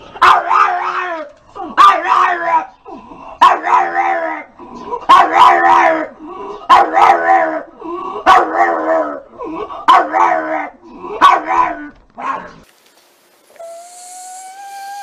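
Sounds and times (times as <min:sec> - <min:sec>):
dog bark-howling: 0:00.2 - 0:02.7, 0:03.4 - 0:06.1, 0:06.7 - 0:09.2, 0:09.9 - 0:12.5.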